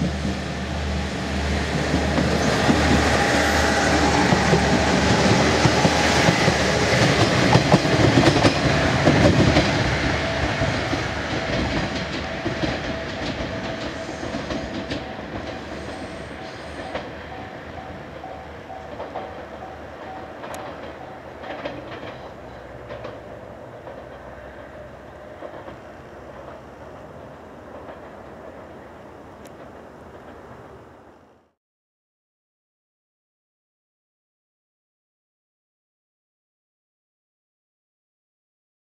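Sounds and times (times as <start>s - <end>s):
train wheels clacking over rails: 0.0s - 31.0s.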